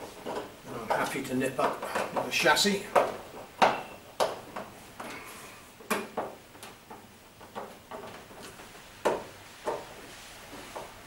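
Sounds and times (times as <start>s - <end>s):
plastic clicks and knocks: 2.9s - 5.1s.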